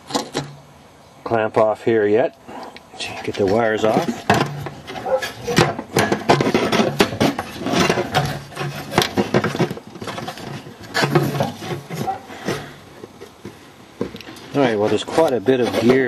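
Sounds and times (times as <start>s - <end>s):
hard plastic clicking and scraping: 2.6s - 16.0s.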